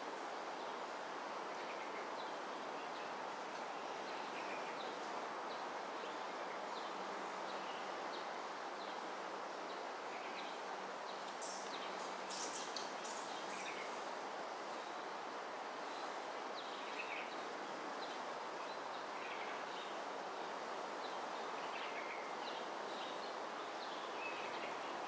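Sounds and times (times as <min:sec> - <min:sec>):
outdoor background noise: 0:00.0 - 0:25.0
faint bird chirps: 0:11.4 - 0:14.0.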